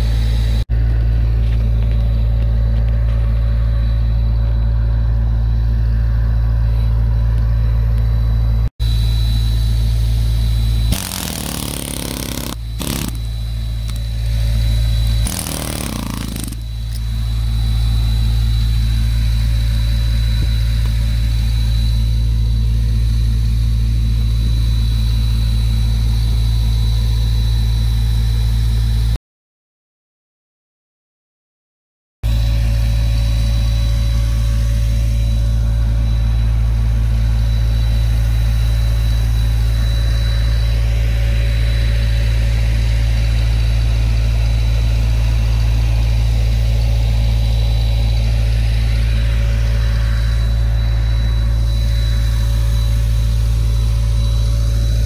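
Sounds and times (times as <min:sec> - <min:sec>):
air hammer chipping wood: 0:10.9 - 0:14.1, 0:15.0 - 0:17.0.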